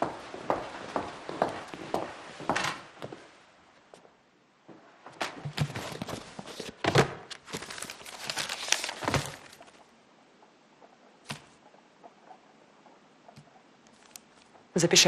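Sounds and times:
rustling: 5.6s - 9.8s.

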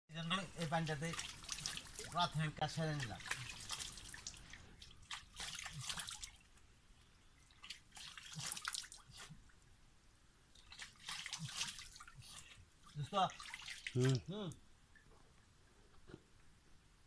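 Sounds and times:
water trickling: 0.2s - 9.8s, 10.5s - 15.6s
hands splashing water: 0.6s - 6.6s, 7.4s - 9.3s, 10.6s - 14.3s.

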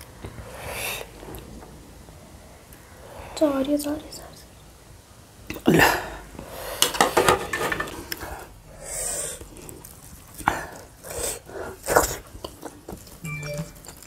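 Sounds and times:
person eating: 9.3s - 14.0s.

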